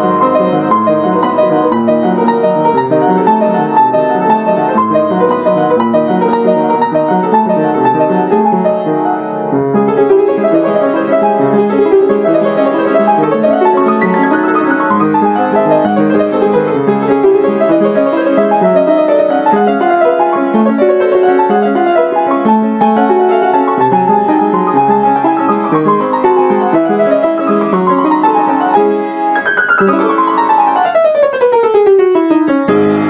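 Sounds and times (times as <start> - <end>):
background piano music: 0.0 - 33.0.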